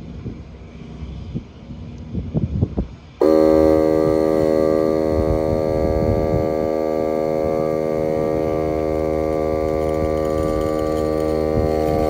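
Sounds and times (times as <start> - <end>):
electric air compressor humming: 3.2 - 12.0.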